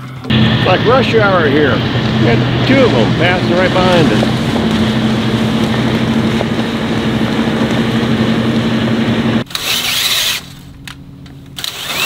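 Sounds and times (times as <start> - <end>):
boat diesel engine droning: 0.0 - 9.5
drill boring into metal: 9.5 - 10.5, 11.6 - 12.0.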